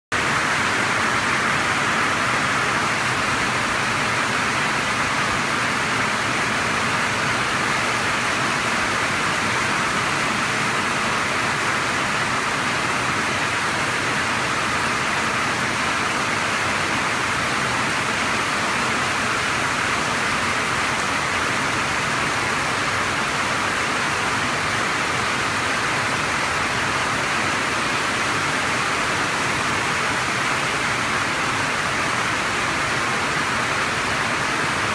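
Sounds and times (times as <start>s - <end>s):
heavy rain hissing: 0.2s - 34.9s.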